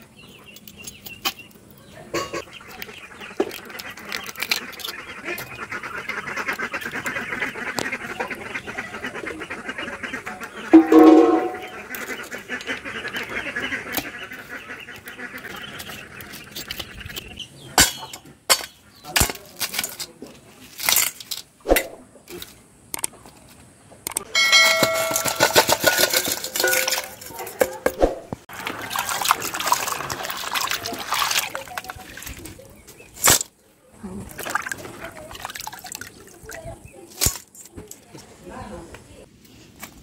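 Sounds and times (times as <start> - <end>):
water sloshing in a bucket: 24.8 - 33.1, 34.0 - 37.1.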